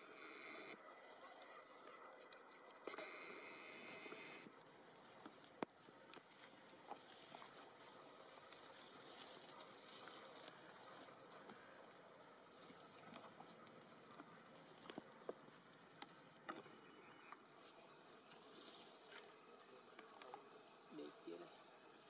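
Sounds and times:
faint outdoor ambience: 0:00.0 - 0:22.0.

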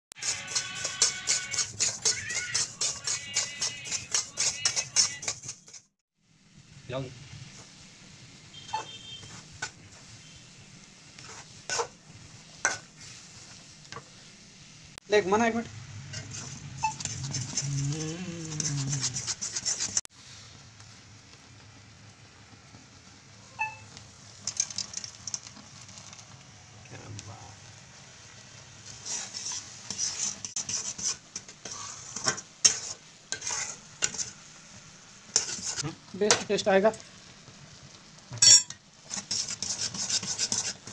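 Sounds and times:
ladle scraping pot of syrup: 0:00.2 - 0:05.8, 0:16.1 - 0:20.1
metal spatula scraping pan: 0:00.2 - 0:05.9, 0:11.2 - 0:12.0, 0:16.0 - 0:20.1, 0:28.8 - 0:34.5, 0:35.3 - 0:35.8, 0:38.4 - 0:40.9
faint sizzle: 0:06.2 - 0:40.9
sugar mixture bubbling: 0:16.2 - 0:20.6.

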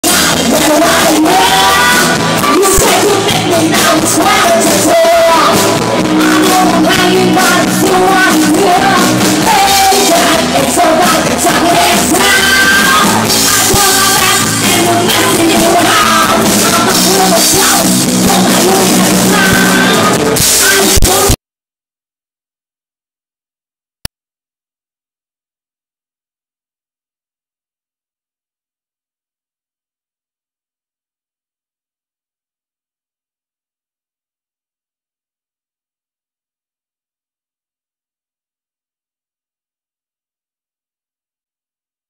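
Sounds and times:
live band playing: 0:00.0 - 0:21.4
people singing into microphones: 0:00.0 - 0:21.4.

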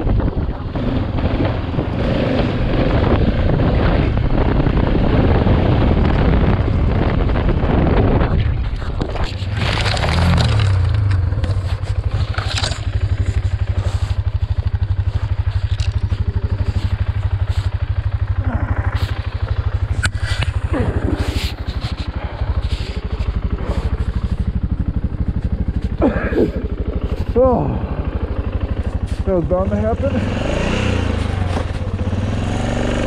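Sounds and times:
motorcycle engine idling: 0:00.0 - 0:33.0
scraping and crashing: 0:09.0 - 0:14.1.

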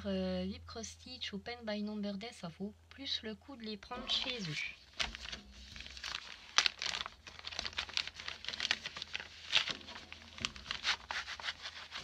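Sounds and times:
plastic packaging crinkling: 0:04.0 - 0:12.0.

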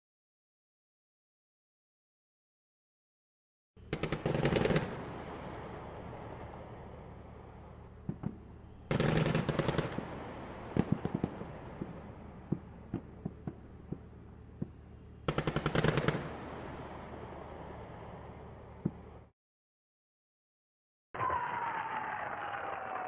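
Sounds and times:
machine-gun fire: 0:03.9 - 0:05.4, 0:08.1 - 0:14.7, 0:15.3 - 0:17.2
steady low rumble: 0:04.9 - 0:19.3.

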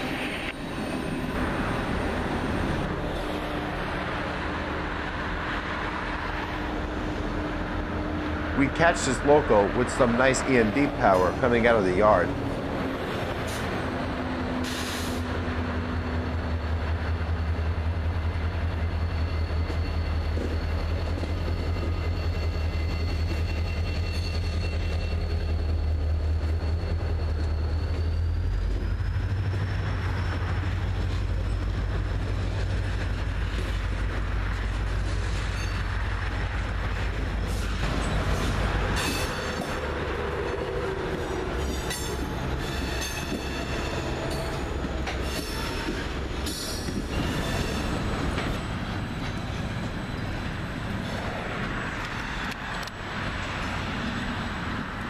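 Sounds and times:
diesel locomotive drone: 0:00.0 - 0:55.0
faint wheel squeal: 0:18.8 - 0:30.9.

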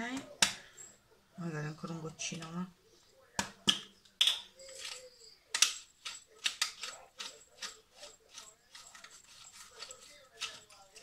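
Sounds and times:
pepper mill grinding: 0:05.6 - 0:11.0.

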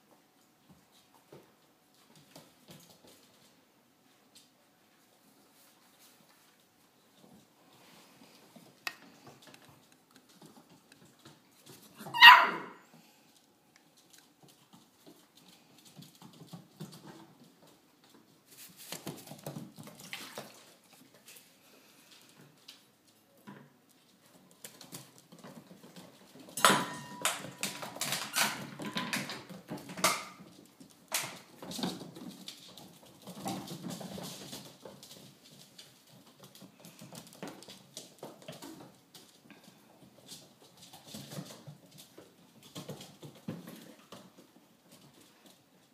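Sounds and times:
paws scrabbling on floor: 0:00.0 - 0:45.9
puppies scuffling: 0:00.0 - 0:45.9
puppy crying: 0:12.0 - 0:12.8.

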